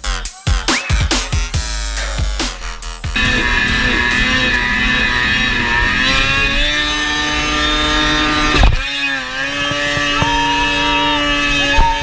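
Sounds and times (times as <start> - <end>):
snowmobile engine high revs: 2.4 - 12.0.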